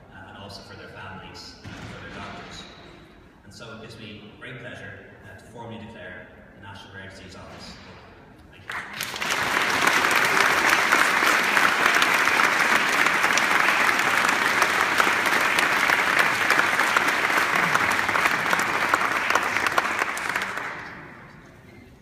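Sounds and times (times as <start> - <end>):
audience applauding: 8.7 - 21.5.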